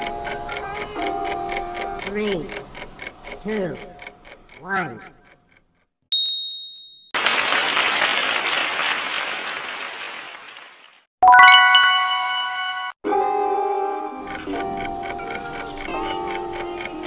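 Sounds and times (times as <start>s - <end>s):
high ding: 6.2s - 7.2s, 11.2s - 13.0s
applause: 7.2s - 11.7s
bright bell chime: 11.2s - 13.0s.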